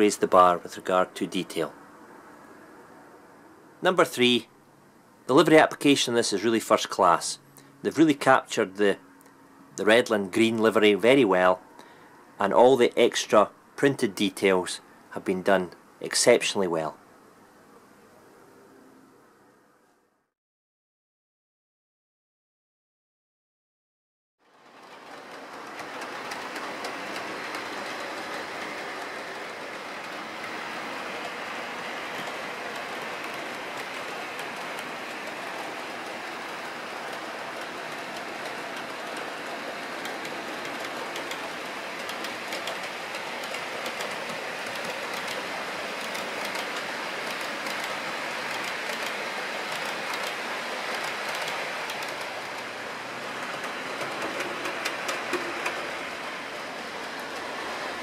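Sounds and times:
model trains whirring on track: 24.4s - 58.0s
wheels clicking over rail joints: 24.6s - 58.0s.

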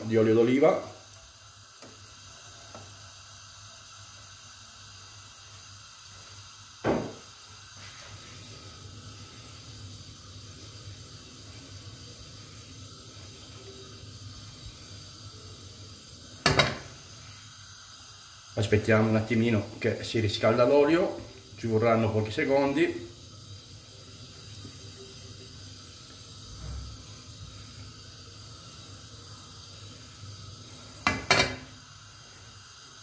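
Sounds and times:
gas burner hissing: 0.0s - 33.0s
pan knocking on metal grate: 16.4s - 16.9s, 31.0s - 31.7s.

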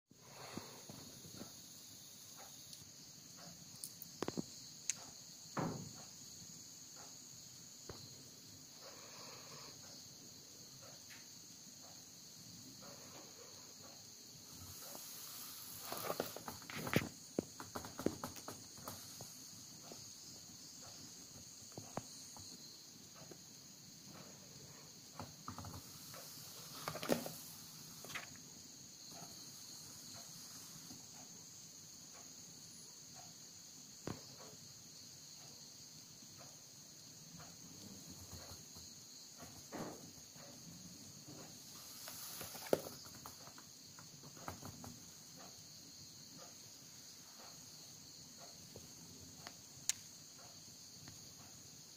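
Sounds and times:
book pages rustling: 15.8s - 19.0s, 42.1s - 43.5s.

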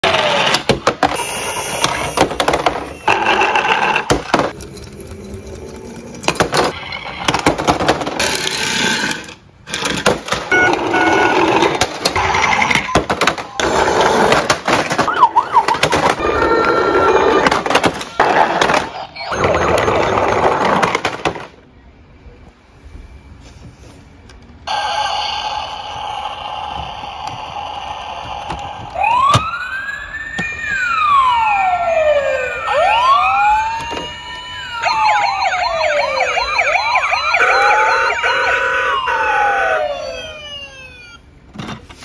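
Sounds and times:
toy electronic sirens: 0.0s - 4.1s, 10.5s - 13.8s, 15.0s - 18.2s, 18.8s - 20.7s, 24.7s - 41.3s
plastic toy cars clattering: 2.1s - 21.6s.

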